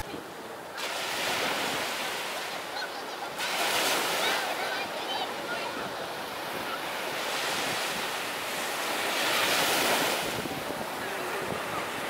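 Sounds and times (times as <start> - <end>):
waves breaking on sandy shore: 0.0 - 12.0
wind buffeting microphone: 9.3 - 12.0.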